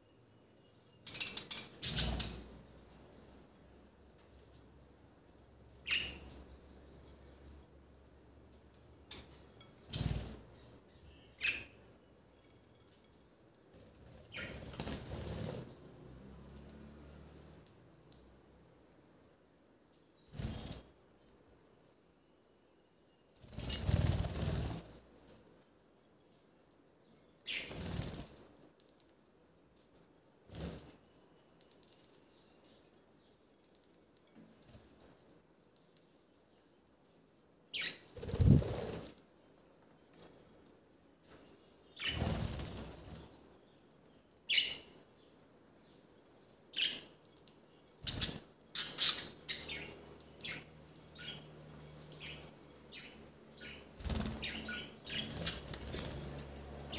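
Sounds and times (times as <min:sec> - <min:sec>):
budgies fluttering wings: 0:01.1 - 0:02.6, 0:09.1 - 0:10.8, 0:13.7 - 0:16.8, 0:20.2 - 0:21.0, 0:23.4 - 0:25.0, 0:27.5 - 0:28.5, 0:30.5 - 0:31.0, 0:37.8 - 0:39.2, 0:42.0 - 0:43.4, 0:48.0 - 0:56.9
budgerigar wings flapping: 0:54.0 - 0:56.9.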